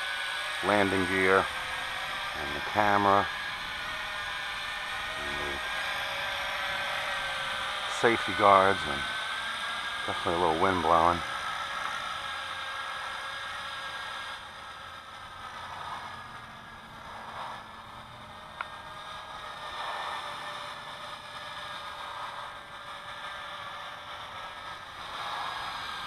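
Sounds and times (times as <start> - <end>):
distant quadcopter motors whining: 0.0 - 26.0.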